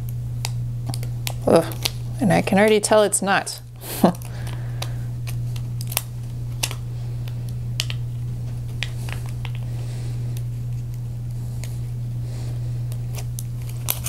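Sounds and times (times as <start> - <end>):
steady low hum: 0.0 - 14.0
scissors snipping plastic: 4.0 - 6.8, 13.1 - 14.0.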